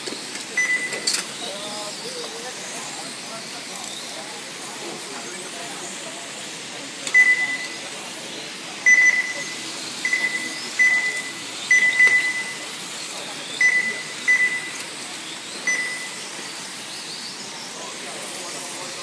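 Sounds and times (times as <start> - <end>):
lap timer short beeps: 0.6 - 1.0, 7.1 - 7.8, 8.8 - 12.7, 13.6 - 14.8, 15.7 - 16.2.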